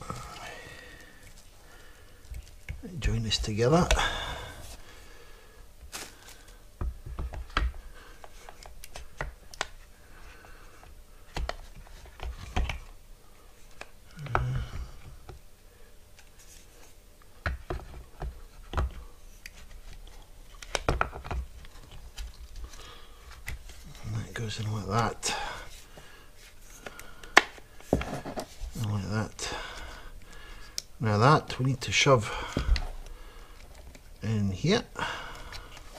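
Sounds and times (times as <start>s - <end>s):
hands clicking plastic connectors: 2.2s - 2.8s, 7.0s - 9.8s, 26.8s - 27.6s.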